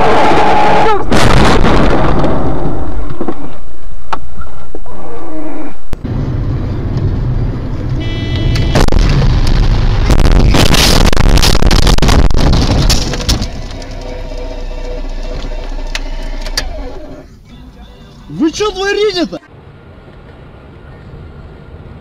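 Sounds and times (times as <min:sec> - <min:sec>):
road and engine noise: 0:02.7 - 0:22.0
loud distorted noise: 0:08.0 - 0:16.2
windscreen cracking: 0:08.6 - 0:17.1
car collision: 0:10.4 - 0:14.1.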